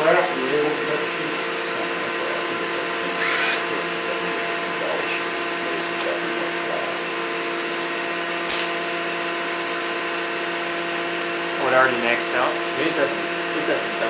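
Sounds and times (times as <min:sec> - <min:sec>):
testing machine humming: 0:00.0 - 0:14.0
sharp click: 0:08.4 - 0:08.7.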